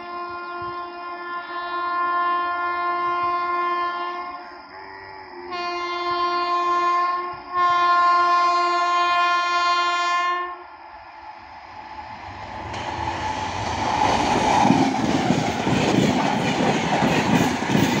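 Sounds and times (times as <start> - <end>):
train horn blasts: 0.0 - 4.6, 5.5 - 10.7.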